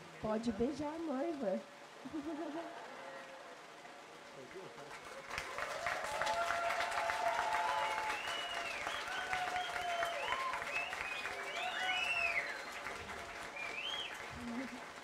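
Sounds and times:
crowd applauding: 2.6 - 15.0
cheers and whoops: 2.8 - 3.7, 5.1 - 14.8.

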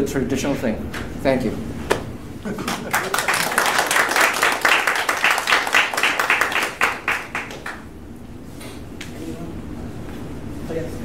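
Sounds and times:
audience applauding: 2.6 - 7.9.

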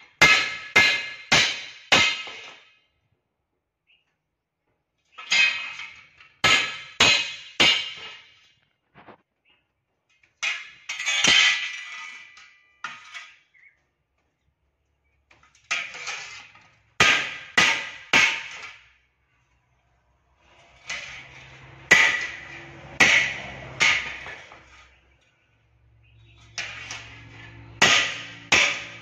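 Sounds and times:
hammer striking steel bar: 0.2 - 2.7, 5.4 - 8.3, 17.0 - 18.8, 20.9 - 24.7, 26.5 - 29.0.

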